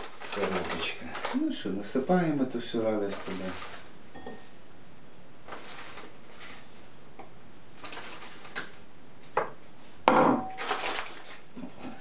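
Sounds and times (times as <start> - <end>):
bag crinkling: 0.0 - 1.7, 3.0 - 3.9, 10.6 - 11.4
dry herbs rustling: 0.0 - 4.6, 5.4 - 7.0.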